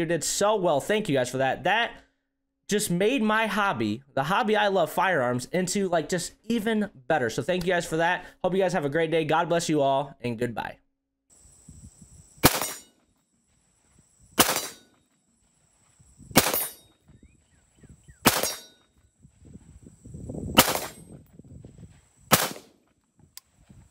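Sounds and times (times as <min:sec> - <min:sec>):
rifle shots: 0:12.4 - 0:12.9, 0:14.4 - 0:14.9, 0:16.3 - 0:16.8, 0:18.2 - 0:18.8, 0:20.6 - 0:21.1, 0:22.3 - 0:22.8.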